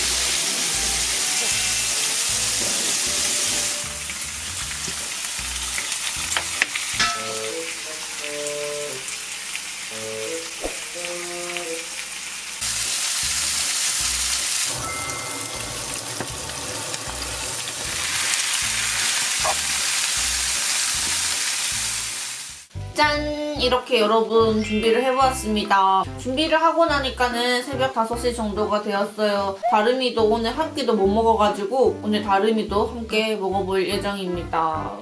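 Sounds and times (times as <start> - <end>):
pork sizzling in a pan: 0.0 - 22.7.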